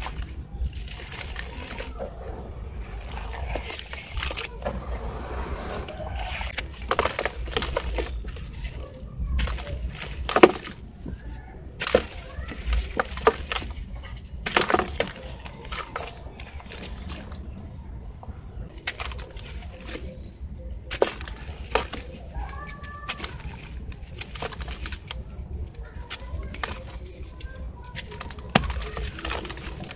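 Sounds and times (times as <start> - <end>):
water sloshing: 0.0 - 17.7
gritty crunching and cracking: 0.0 - 29.9.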